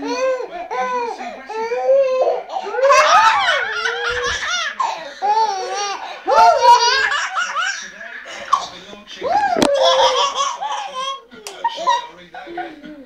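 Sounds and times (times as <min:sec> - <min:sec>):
toddler giggling: 0:02.6 - 0:13.0.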